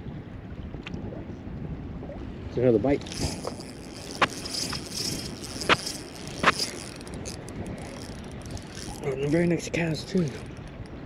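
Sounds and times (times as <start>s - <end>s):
fishing reel clicks: 3.0s - 11.0s
light high jingling rattle: 3.0s - 11.0s.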